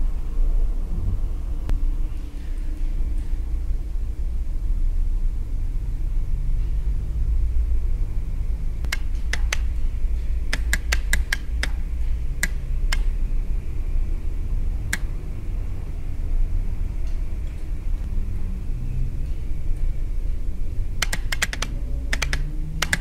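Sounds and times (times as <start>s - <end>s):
steady low rumble: 0.0s - 23.0s
relays clicking: 8.8s - 13.2s, 20.9s - 23.0s.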